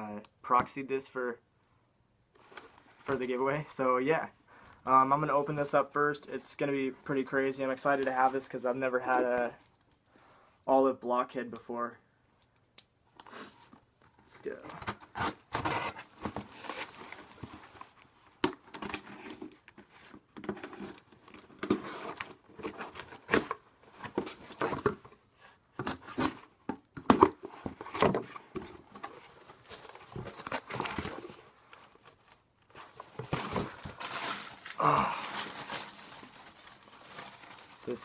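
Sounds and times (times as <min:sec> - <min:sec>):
packaging rustling and tearing: 0:27.2 - 0:38.0.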